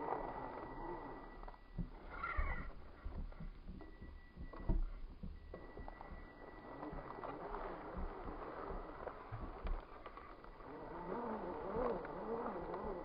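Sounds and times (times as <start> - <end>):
wavering squeal: 0.0 - 3.0
electric motor whining: 0.0 - 3.1, 4.4 - 13.0.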